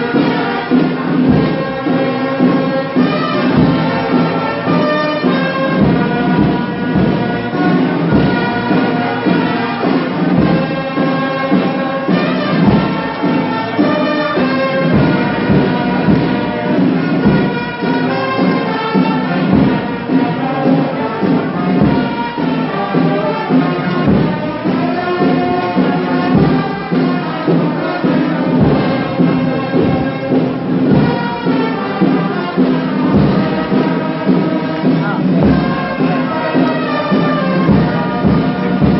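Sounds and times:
brass band playing: 0.0 - 38.9
drum beats: 0.0 - 38.9.

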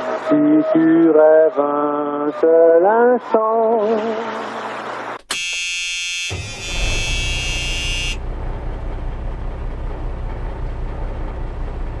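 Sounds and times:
truck horn: 5.3 - 8.3
low engine rumble: 6.6 - 12.0.

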